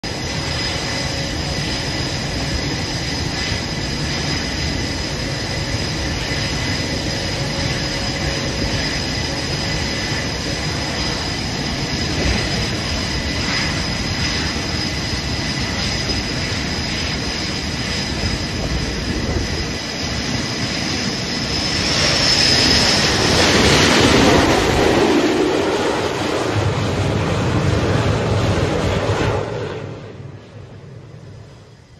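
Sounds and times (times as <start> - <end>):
fighter jet landing: 0.0 - 31.9
jet engine noise with high whine: 0.0 - 31.9.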